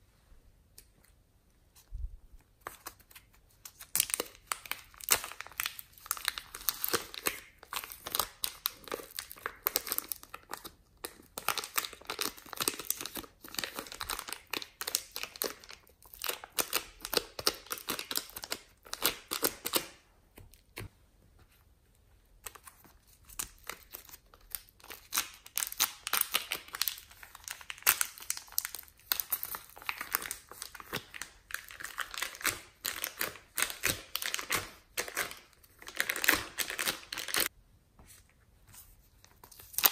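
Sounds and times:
plastic bags crinkling: 24.6s - 37.5s.

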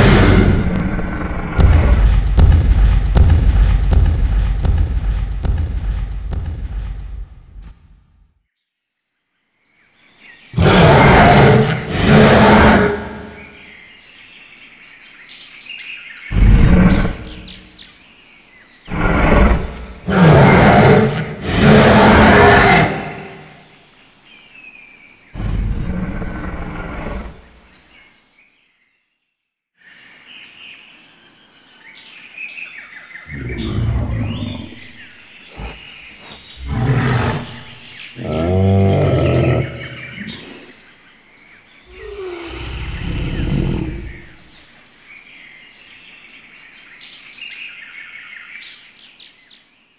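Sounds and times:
dinosaur roars and growls: 0.0s - 2.5s, 10.6s - 13.6s, 16.3s - 17.6s, 18.9s - 23.6s, 25.4s - 27.5s, 33.3s - 40.8s, 41.9s - 44.5s
birds chirping: 9.8s - 23.6s, 24.3s - 28.2s, 32.0s - 49.7s.

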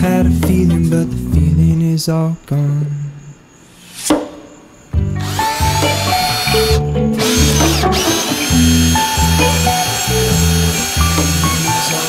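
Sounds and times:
loud background music: 5.0s - 12.0s
cordless drill whining: 5.2s - 12.0s.

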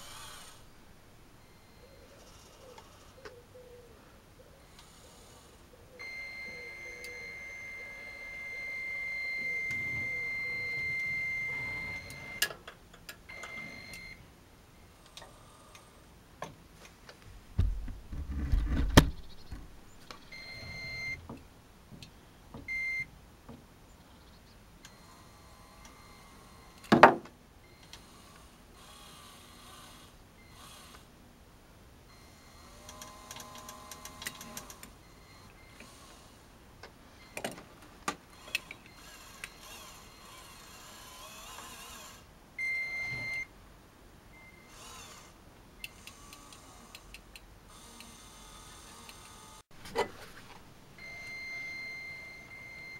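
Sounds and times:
toy electric motor whine: 0.0s - 0.7s, 4.7s - 12.4s, 24.9s - 26.8s, 27.8s - 31.1s, 32.2s - 36.4s, 38.3s - 42.3s, 44.6s - 47.1s, 47.7s - 49.6s
clunks and knocks: 17.5s - 19.7s.

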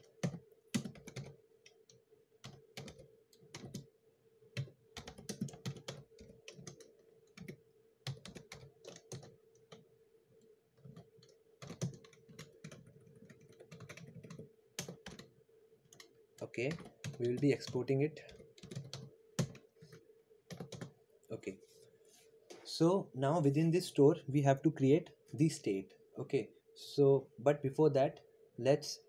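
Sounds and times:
typing on computer keyboard: 0.0s - 3.9s, 4.5s - 9.8s, 10.8s - 15.3s, 15.9s - 16.1s, 16.7s - 19.7s, 20.5s - 21.0s
faint steady hum: 0.0s - 29.0s.

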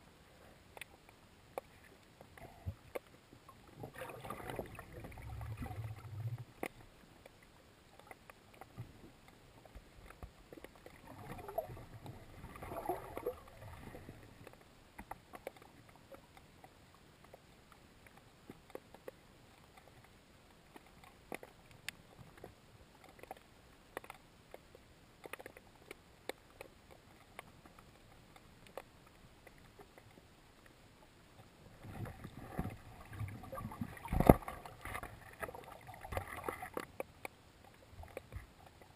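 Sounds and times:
underwater clicks and crackles: 0.2s - 38.9s
water rushing: 3.7s - 6.7s, 9.7s - 15.6s, 31.6s - 37.0s.

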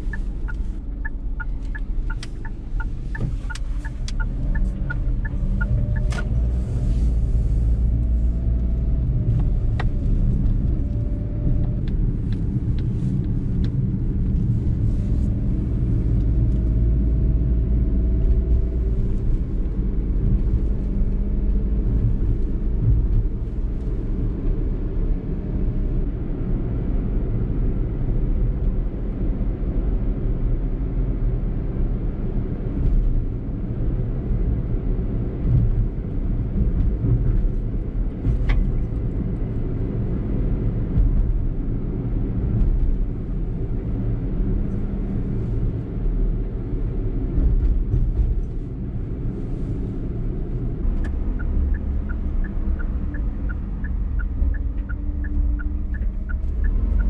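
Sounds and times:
car engine humming: 0.0s - 25.3s, 34.4s - 57.0s
tyre and road rumble: 35.0s - 57.0s.

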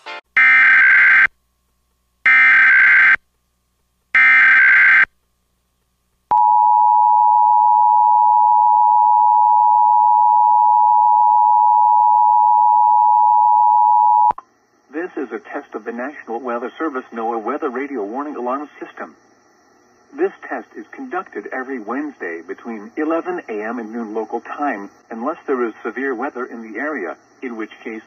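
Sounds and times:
steady alarm tone: 0.4s - 1.3s, 2.3s - 3.2s, 4.2s - 5.1s, 6.3s - 14.3s.

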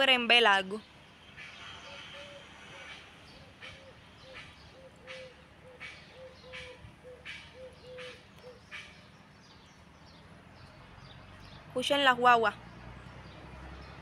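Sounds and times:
low hooting bird notes: 1.5s - 9.2s.

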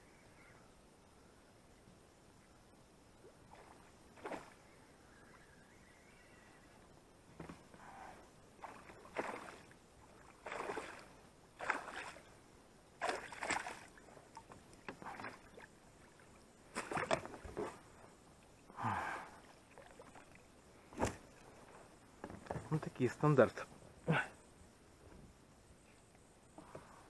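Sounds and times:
water splashing beside boat: 3.2s - 4.7s, 8.6s - 12.4s, 13.0s - 17.9s, 19.5s - 21.5s.

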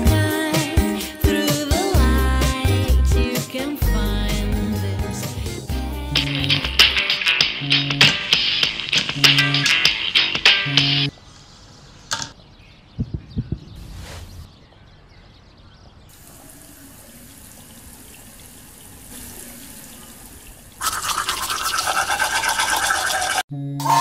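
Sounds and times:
steady hiss: 16.1s - 20.8s
toothbrush scrubbing teeth: 20.8s - 23.4s.

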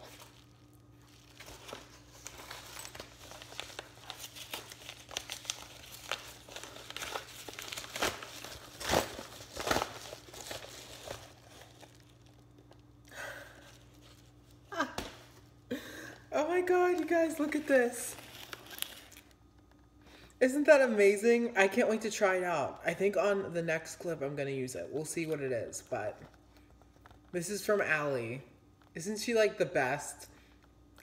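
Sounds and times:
paper envelope crinkling and tearing: 0.0s - 15.4s, 16.4s - 19.8s.

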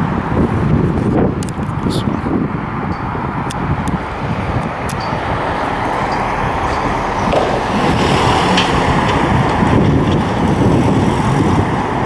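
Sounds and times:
street traffic: 0.0s - 12.0s
truck passing close by: 2.7s - 12.0s.

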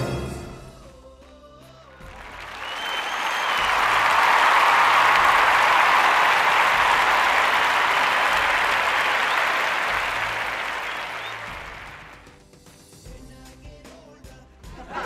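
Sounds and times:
crowd applause: 2.0s - 12.3s.

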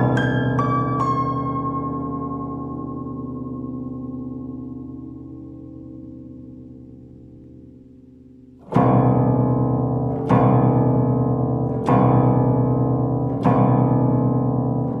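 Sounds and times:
out-of-tune piano chords: 0.0s - 7.7s.

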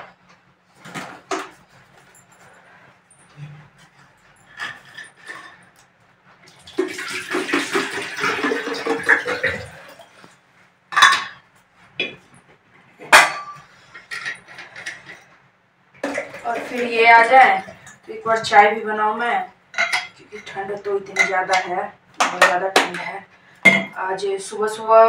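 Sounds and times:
water pouring into metal vessel: 6.7s - 10.0s.

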